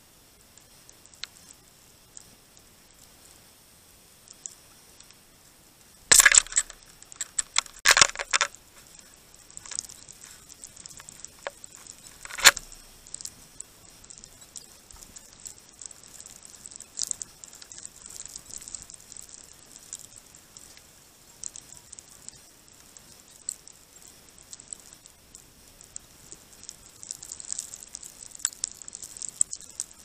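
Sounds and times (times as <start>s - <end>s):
clinking taps and scratches: 6.1s - 8.5s.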